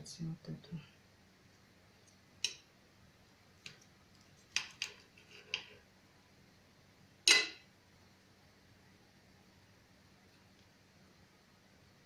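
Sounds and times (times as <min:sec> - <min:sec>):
cutlery clinking on glass plate: 0:07.3 - 0:07.6.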